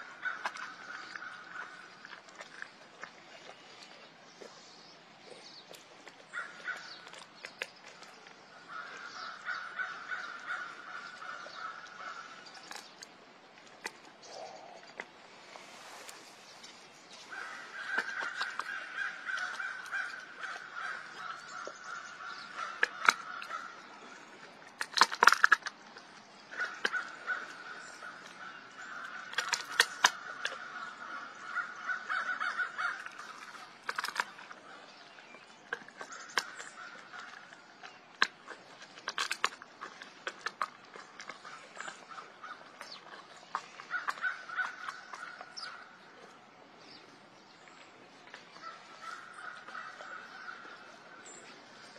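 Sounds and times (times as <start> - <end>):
bone crunching and cracking: 17.2 - 30.8, 32.1 - 45.8
raspy grinding on bone: 17.2 - 30.9, 32.2 - 45.8.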